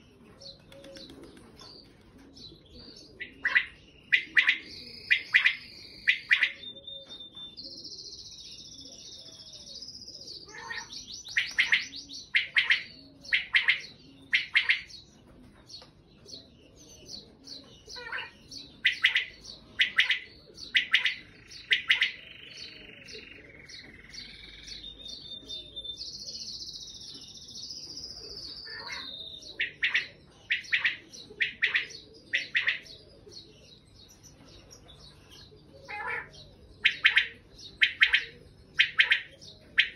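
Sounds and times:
quail calling: 3.0 - 6.8, 10.4 - 14.9, 17.9 - 24.9, 28.5 - 33.3, 35.7 - 39.9.

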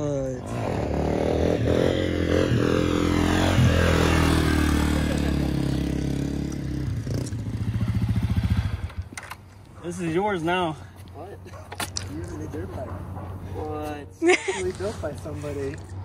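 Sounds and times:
motorcycle engine revving and idling: 0.0 - 9.2.

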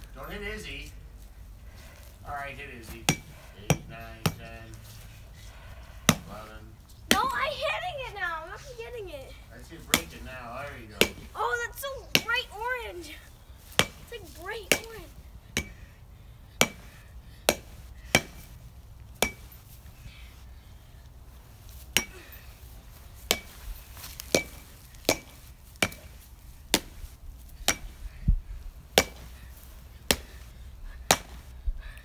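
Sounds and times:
baseball bat hitting pumpkin: 2.8 - 4.6, 6.0 - 6.5, 9.8 - 11.5, 12.1 - 12.5, 13.7 - 16.0, 16.6 - 18.5, 19.2 - 19.6, 21.9 - 22.4, 23.3 - 28.2, 28.9 - 31.5.

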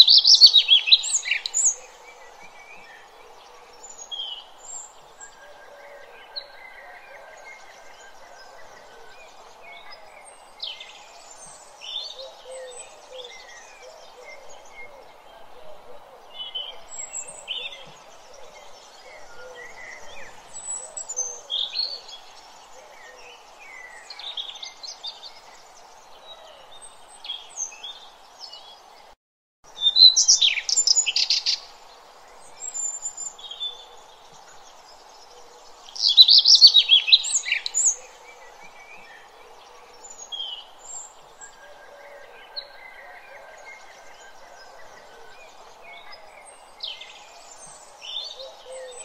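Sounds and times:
steady background hiss: 29.7 - 41.5
birds chirping and singing: 29.7 - 49.0.

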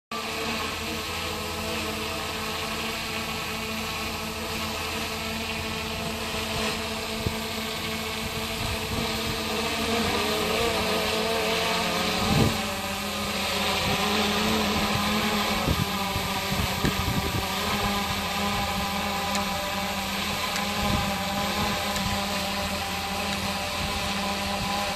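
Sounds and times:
wind gusts hitting microphone: 8.1 - 10.8, 11.9 - 12.8, 13.8 - 19.1.

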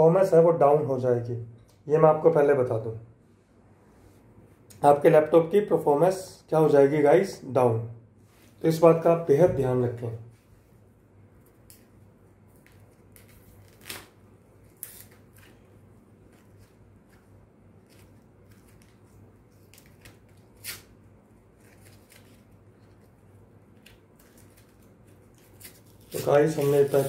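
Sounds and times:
packaging crackling and rustling: 12.5 - 27.0.

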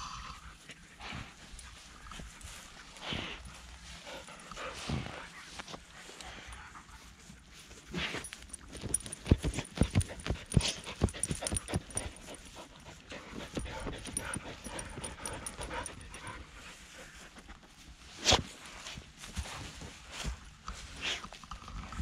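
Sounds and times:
dog panting: 0.6 - 6.9, 8.1 - 17.8.

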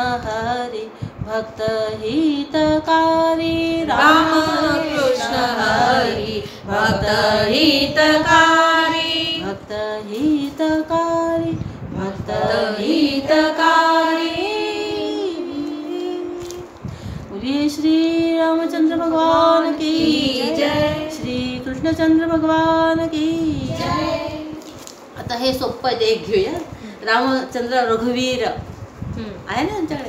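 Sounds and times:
woman singing devotional song: 0.0 - 24.9.

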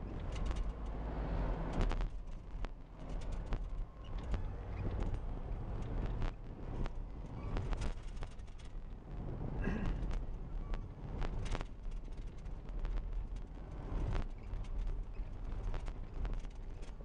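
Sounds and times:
engine and tyre rumble: 0.0 - 17.0.

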